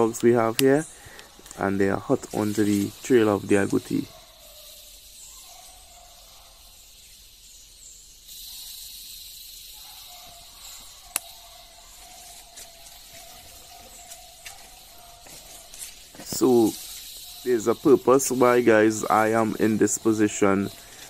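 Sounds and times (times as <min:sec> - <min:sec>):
high insect drone: 0:00.0 - 0:21.0
sharp click: 0:11.1 - 0:11.4.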